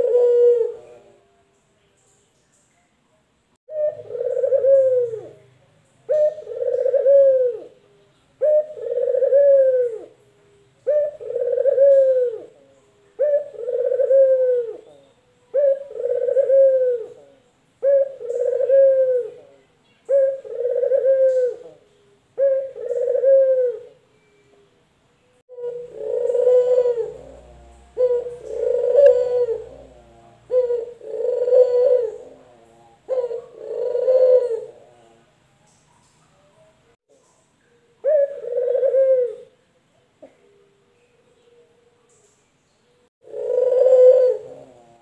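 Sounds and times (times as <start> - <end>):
dove cooing: 0.0 - 1.3, 3.7 - 5.5, 6.1 - 24.6, 25.5 - 35.3, 37.6 - 39.6, 43.2 - 45.0.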